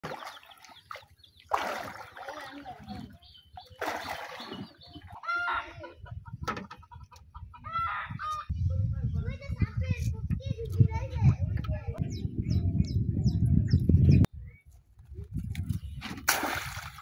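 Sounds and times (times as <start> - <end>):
paddle splashing through water: 0.0 - 3.1, 3.7 - 5.0, 16.3 - 17.0
chicken clucking: 5.8 - 8.5.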